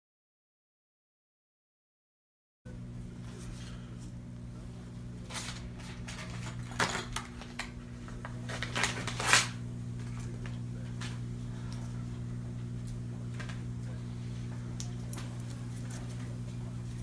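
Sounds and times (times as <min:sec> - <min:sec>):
low electrical hum: 0:02.7 - 0:17.0
bedding rustling and crinkling: 0:05.2 - 0:11.2.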